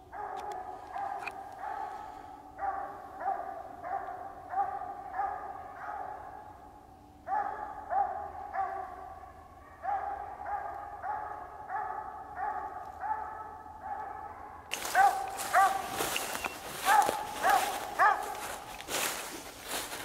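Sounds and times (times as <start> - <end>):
distant dog barking: 0.0 - 20.0
footsteps crunching dry leaves: 14.7 - 20.0.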